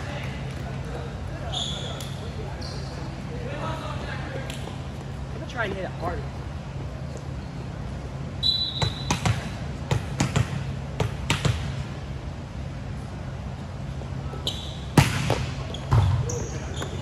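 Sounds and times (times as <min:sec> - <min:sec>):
referee's whistle: 0:08.4 - 0:09.2
volleyball bouncing on gym floor: 0:08.8 - 0:11.9, 0:15.0 - 0:17.0.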